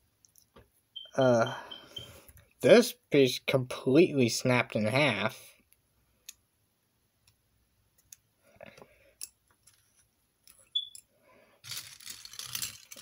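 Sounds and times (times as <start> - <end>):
plastic toy parts clicking: 11.6 - 13.0.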